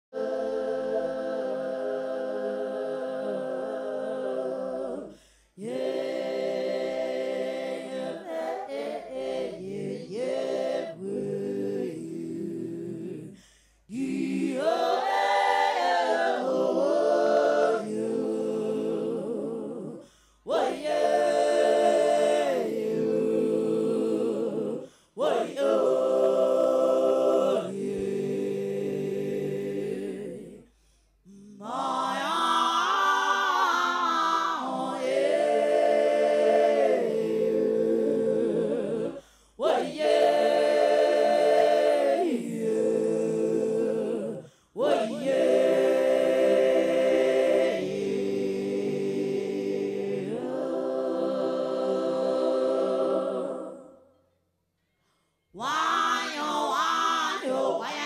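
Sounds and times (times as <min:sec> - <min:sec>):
woman singing unaccompanied: 0:55.6 - 0:58.0.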